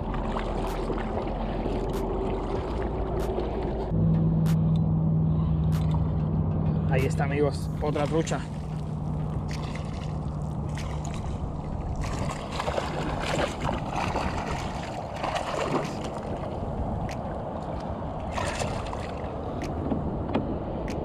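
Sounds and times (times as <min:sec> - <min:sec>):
water sloshing around kayak: 0:00.0 - 0:03.9, 0:07.8 - 0:20.1
fish thrashing and splashing: 0:08.0 - 0:17.4, 0:18.2 - 0:19.6.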